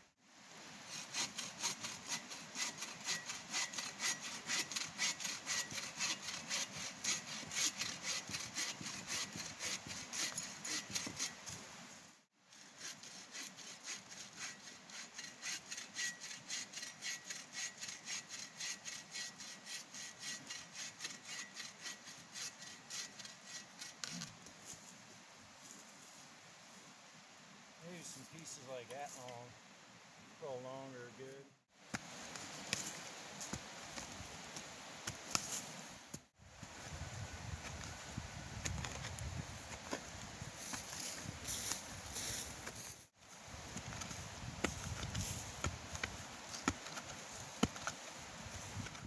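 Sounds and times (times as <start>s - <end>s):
hand saw cutting wood: 0.8s - 11.5s, 12.5s - 24.3s.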